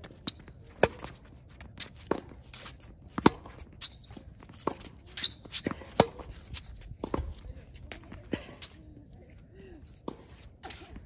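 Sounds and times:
racket hitting tennis ball: 0:00.0 - 0:01.2, 0:02.1 - 0:07.3
tennis ball bouncing: 0:00.0 - 0:07.4.

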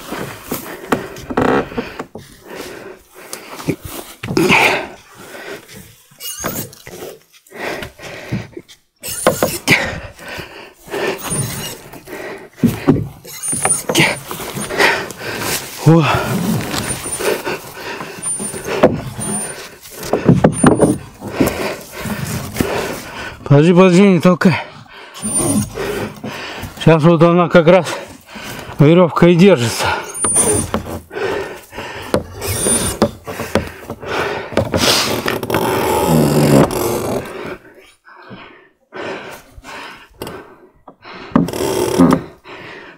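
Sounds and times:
wooden hull knocking and scraping: 0:00.0 - 0:02.6, 0:09.2 - 0:10.0, 0:11.2 - 0:23.1, 0:30.2 - 0:37.3, 0:40.9 - 0:42.4
men grunting and breathing hard: 0:00.0 - 0:42.9
rustling: 0:12.7 - 0:23.2.

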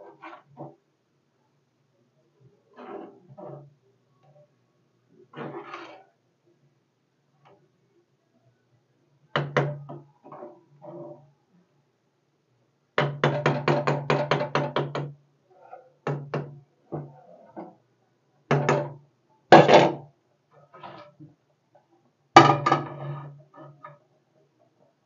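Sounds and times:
ladle knocking on metal pan: 0:22.4 - 0:23.1.

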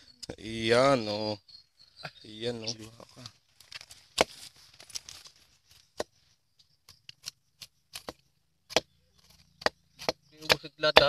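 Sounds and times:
machete cutting pineapple rind: 0:04.1 - 0:04.5, 0:06.9 - 0:11.0
machete chops on log: 0:07.6 - 0:11.0.

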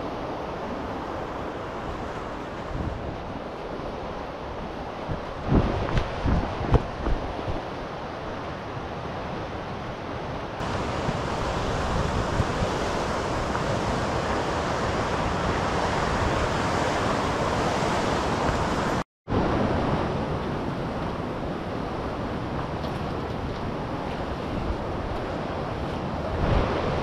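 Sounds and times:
steady rushing outdoor noise: 0:00.0 - 0:27.0.

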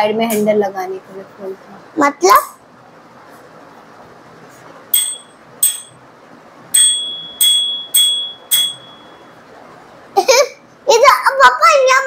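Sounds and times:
handlebar bell dinging: 0:04.9 - 0:06.0, 0:06.8 - 0:09.3.

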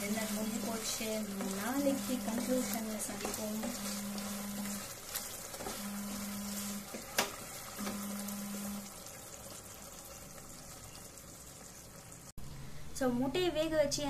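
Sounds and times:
wooden spatula stirring: 0:00.0 - 0:08.7
gravy simmering in pan: 0:00.0 - 0:12.4.

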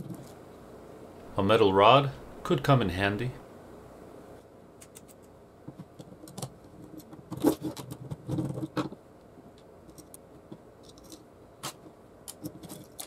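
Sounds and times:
light clicks of metal parts: 0:09.2 - 0:11.3.

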